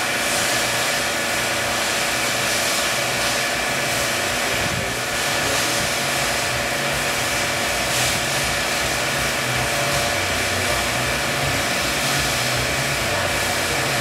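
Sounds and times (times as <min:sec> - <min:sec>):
hydraulic system whirring hiss: 0:00.0 - 0:14.0
pulsing low hum: 0:04.7 - 0:14.0.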